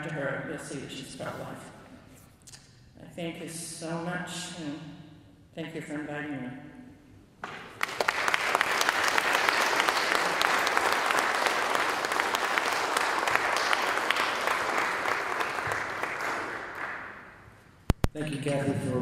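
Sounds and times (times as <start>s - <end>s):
audience applauding: 7.6s - 17.3s.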